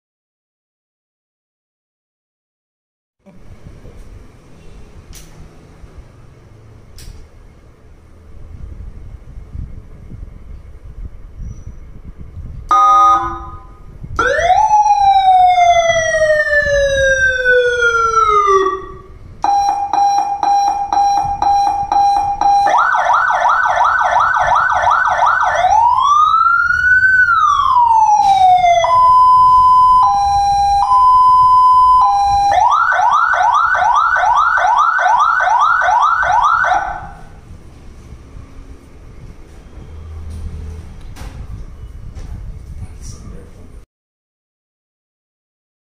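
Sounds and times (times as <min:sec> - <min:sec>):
electronic siren tones: 0:12.7 - 0:37.4.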